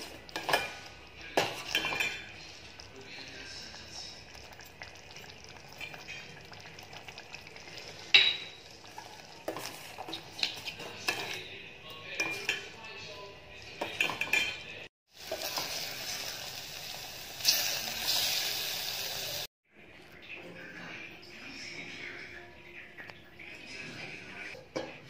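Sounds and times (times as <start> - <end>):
sauce sizzling: 15.1 - 19.5.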